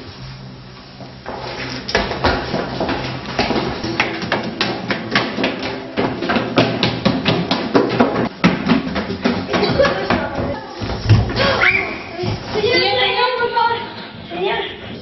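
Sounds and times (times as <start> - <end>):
footsteps running up stairs: 1.0 - 12.7.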